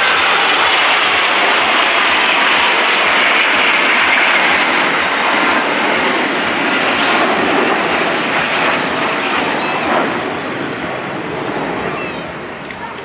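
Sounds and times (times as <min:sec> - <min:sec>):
airplane engine roar: 0:00.0 - 0:13.0.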